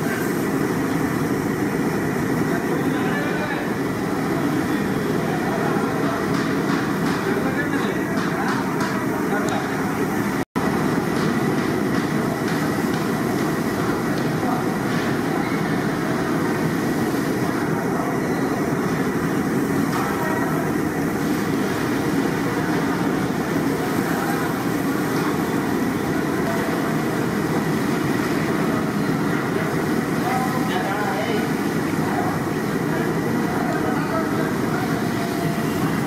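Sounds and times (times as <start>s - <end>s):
gas burner rushing: 0.0s - 36.0s
oil bubbling and sizzling: 18.6s - 33.7s.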